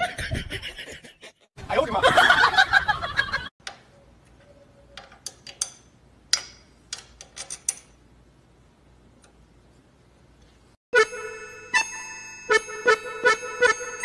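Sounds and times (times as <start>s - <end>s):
metal tool clicking on metal: 5.0s - 8.0s.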